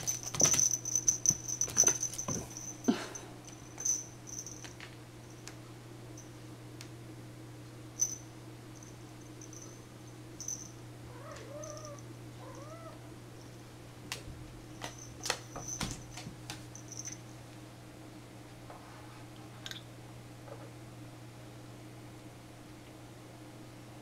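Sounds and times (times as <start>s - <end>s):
steady low hum: 0.0s - 24.0s
cat meowing: 11.1s - 13.0s.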